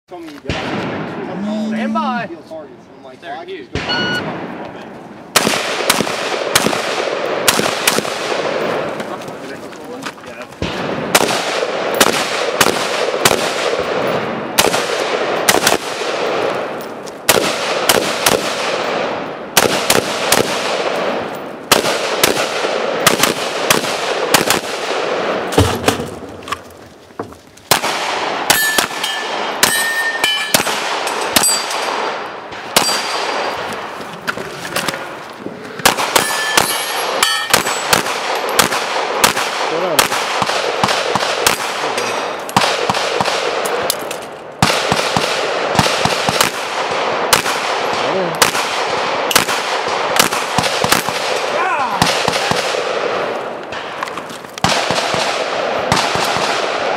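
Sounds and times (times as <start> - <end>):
gunfire: 0.4 - 1.8, 3.7 - 9.5, 10.3 - 26.6, 27.7 - 34.0, 35.8 - 56.9
steel targets clanging: 28.5 - 32.0, 36.2 - 37.9.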